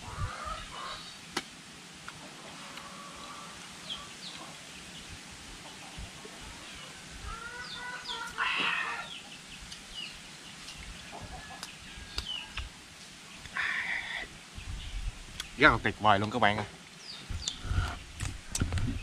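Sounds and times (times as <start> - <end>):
chickens clucking: 0.0 - 1.1, 2.0 - 12.7
small birds chirping: 2.0 - 19.0
short loud bird calls: 6.6 - 9.3.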